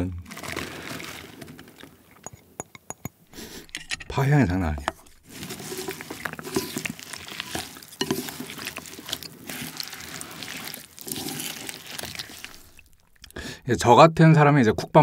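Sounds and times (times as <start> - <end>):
chopsticks stirring thick sauce: 4.8 - 13.6.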